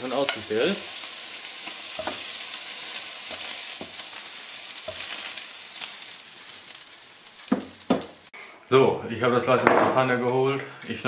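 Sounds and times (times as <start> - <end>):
chicken sizzling in frying pan: 0.0 - 8.3.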